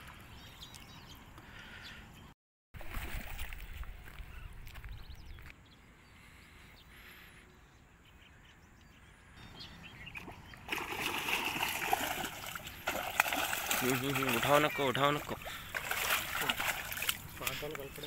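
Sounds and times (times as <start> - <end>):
fish splashing in water: 2.8 - 3.6, 10.2 - 18.0.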